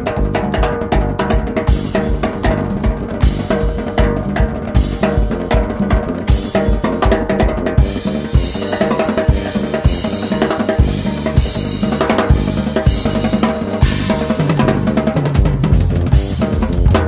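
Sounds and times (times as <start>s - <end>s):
drum kit beat: 0.0s - 17.0s
jazz band playing: 7.4s - 17.0s
cymbals washing: 8.3s - 14.9s.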